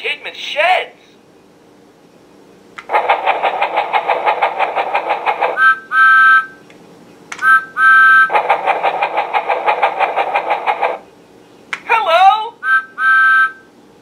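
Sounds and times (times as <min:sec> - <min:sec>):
toy steam train chugging: 0:02.8 - 0:06.2, 0:08.2 - 0:11.1
two-note train whistle: 0:05.6 - 0:06.6, 0:07.4 - 0:08.3, 0:12.6 - 0:13.7.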